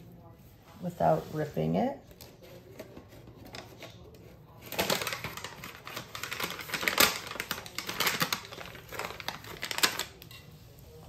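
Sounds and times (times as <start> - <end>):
paper mold crinkling: 2.1 - 10.4.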